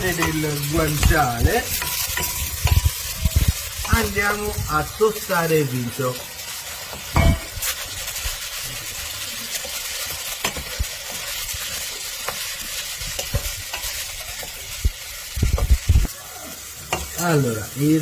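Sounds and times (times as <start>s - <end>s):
rice sizzling in hot fat: 0.0s - 18.0s.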